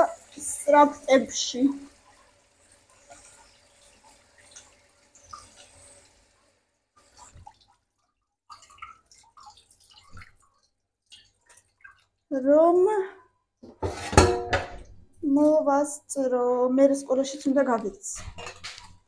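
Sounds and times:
water dripping and trickling: 0:00.0 - 0:13.4, 0:14.7 - 0:19.0
pot knocking: 0:13.6 - 0:14.8.

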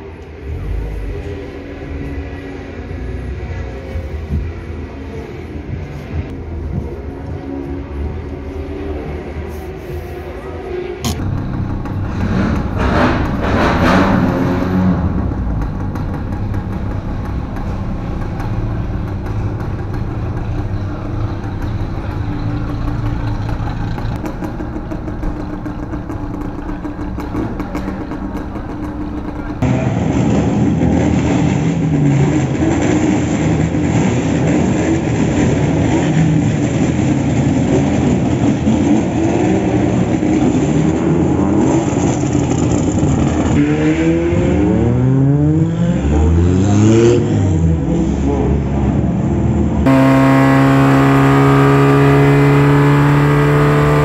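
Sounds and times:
voices: 0:00.0 - 0:29.6
race car engines revving: 0:00.0 - 0:54.0
car engine at low revs: 0:11.1 - 0:43.6, 0:49.6 - 0:54.0.

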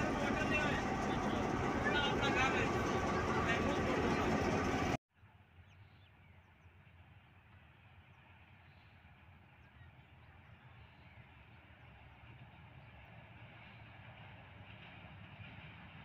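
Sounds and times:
diesel locomotive engine running: 0:00.0 - 0:05.0.

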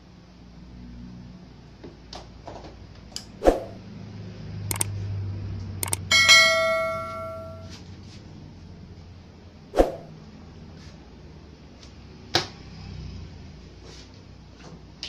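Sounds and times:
tools clicking on workbench: 0:05.8 - 0:06.1
metal object ringing: 0:05.8 - 0:07.7.

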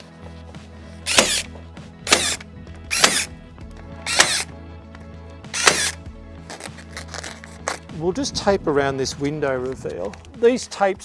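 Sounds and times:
electric stapler firing: 0:01.1 - 0:01.5, 0:02.1 - 0:03.4, 0:04.0 - 0:04.5, 0:05.5 - 0:06.0.

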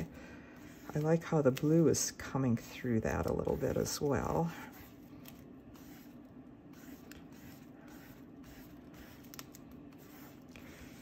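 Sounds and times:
steady low hum: 0:00.0 - 0:11.0
paintbrush brushing on paper: 0:00.4 - 0:01.8, 0:02.6 - 0:11.0.

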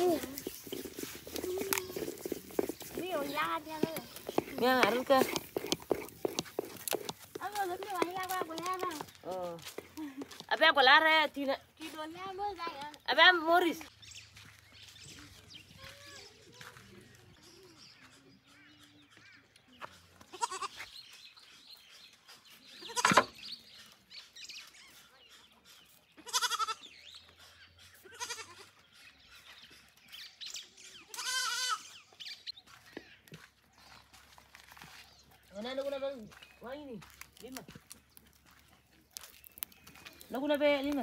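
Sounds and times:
goats bleating: 0:01.4 - 0:02.3, 0:20.3 - 0:20.8, 0:26.2 - 0:26.8, 0:28.0 - 0:28.7, 0:31.1 - 0:31.9.

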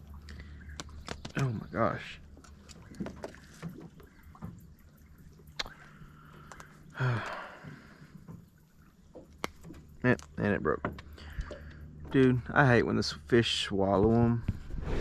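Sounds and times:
clicks and knocks on aluminium boat: 0:02.3 - 0:04.8, 0:07.7 - 0:12.6.

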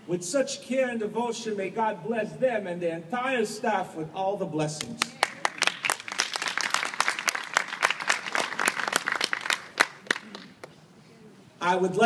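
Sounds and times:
crowd applauding: 0:05.0 - 0:10.7.

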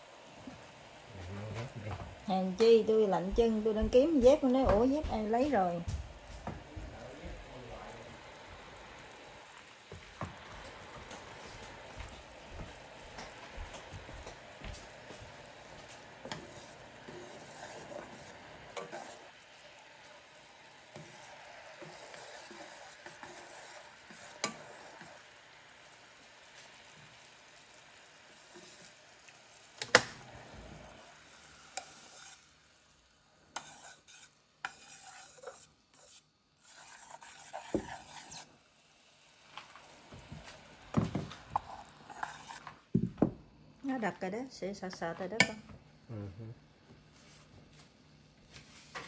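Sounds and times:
sauce bubbling in saucepan: 0:03.4 - 0:43.8.

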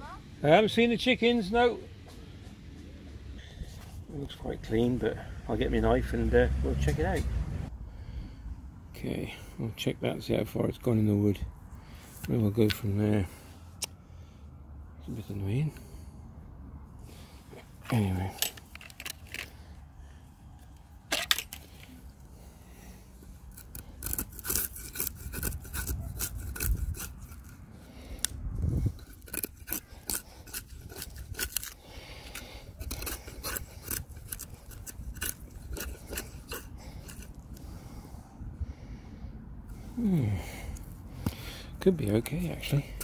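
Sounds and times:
knife scraping bark off log: 0:23.3 - 0:38.0.

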